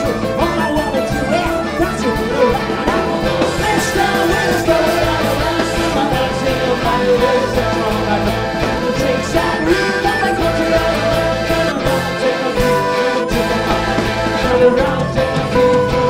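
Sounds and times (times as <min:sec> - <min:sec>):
folk-punk band playing live: 0:00.0 - 0:16.0.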